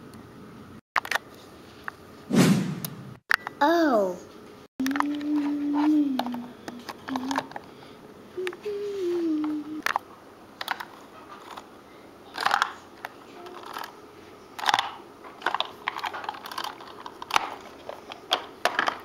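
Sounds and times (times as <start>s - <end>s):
plastic toy pieces clicking: 14.6s - 17.6s.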